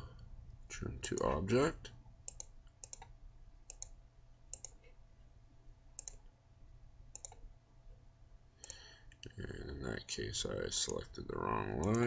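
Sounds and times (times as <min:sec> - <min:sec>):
steady low hum: 0:00.0 - 0:12.0
computer mouse clicks: 0:02.2 - 0:05.0, 0:06.0 - 0:06.3, 0:07.1 - 0:07.5, 0:11.8 - 0:12.0.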